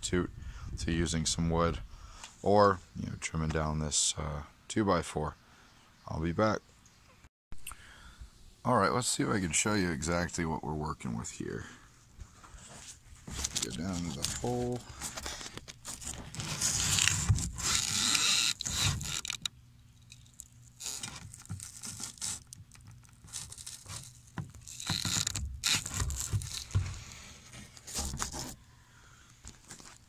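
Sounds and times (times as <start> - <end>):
scraping against foam and fiberglass: 12.3 - 19.5, 20.8 - 28.6.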